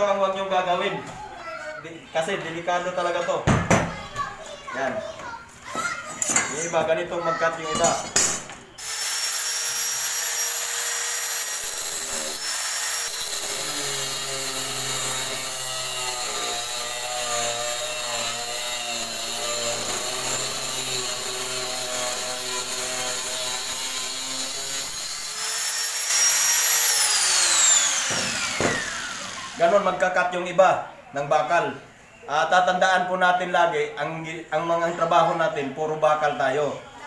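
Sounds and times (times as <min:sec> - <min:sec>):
angle grinder cutting steel: 0:08.8 - 0:30.0.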